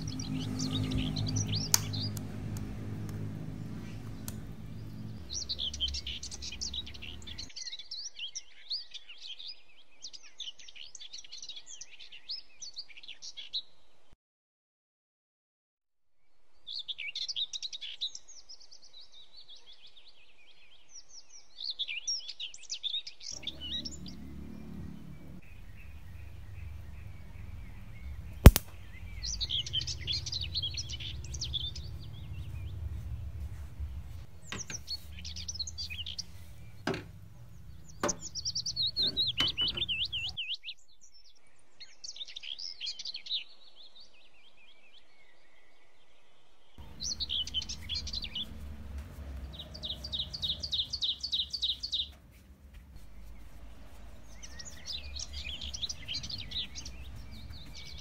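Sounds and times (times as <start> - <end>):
low background rumble: 0.0 - 7.5, 23.4 - 40.4, 46.8 - 58.0
small birds chirping: 0.0 - 13.7, 16.6 - 58.0
sharp click: 28.4 - 29.9.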